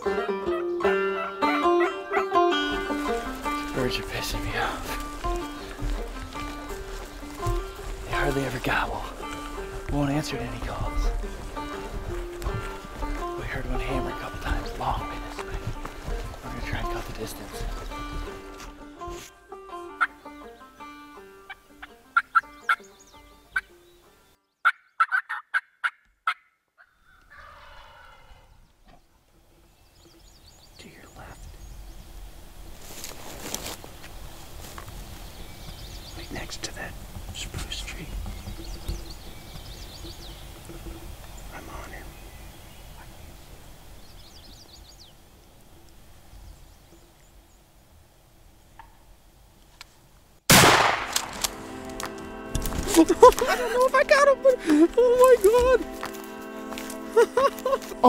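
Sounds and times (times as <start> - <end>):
turkey yelping: 0.0 - 2.4, 21.5 - 22.8, 24.6 - 28.5
music: 0.0 - 24.4, 36.4 - 42.5, 50.8 - 58.0
turkey gobble: 24.6 - 28.5
small bird chirping: 35.0 - 47.6.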